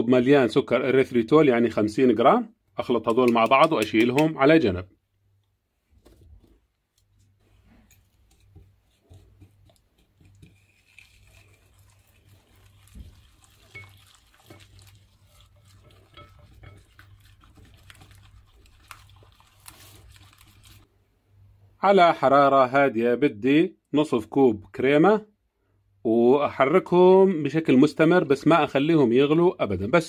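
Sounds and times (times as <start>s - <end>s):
whisk scraping glass bowl: 7.5s - 20.9s.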